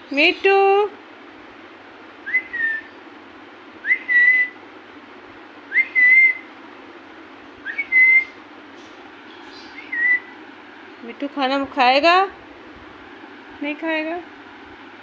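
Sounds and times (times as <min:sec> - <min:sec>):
rising whistles: 0:02.2 - 0:03.0, 0:03.8 - 0:04.6, 0:05.7 - 0:06.5, 0:07.6 - 0:08.4, 0:09.7 - 0:10.4.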